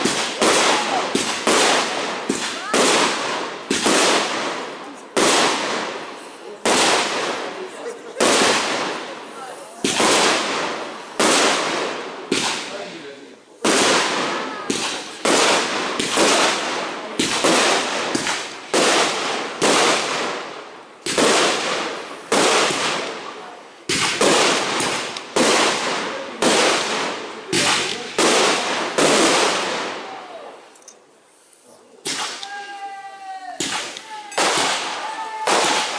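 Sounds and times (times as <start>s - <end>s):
fireworks shells bursting: 33.6s - 35.9s.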